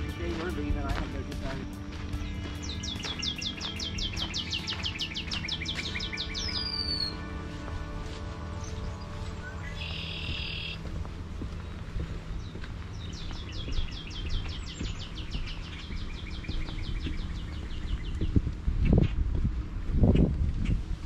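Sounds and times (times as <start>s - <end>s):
songbird rapid high chirps: 0.0s - 7.3s, 8.6s - 10.8s, 12.4s - 18.4s
steady low rumble: 0.0s - 21.0s.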